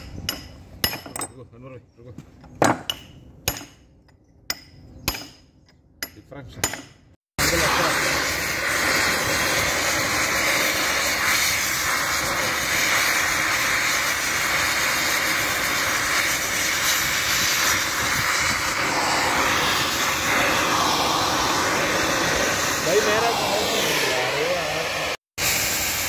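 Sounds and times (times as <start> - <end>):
cutting torch hissing roar: 7.4 - 26.0.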